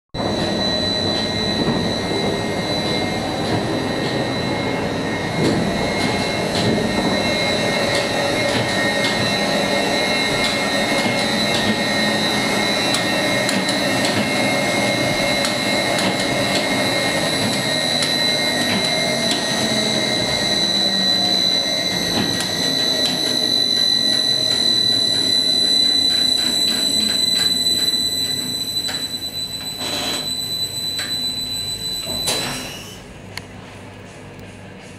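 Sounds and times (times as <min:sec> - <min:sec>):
machinery clunk: 0:00.2 - 0:20.6
winding machinery whining: 0:00.2 - 0:33.0.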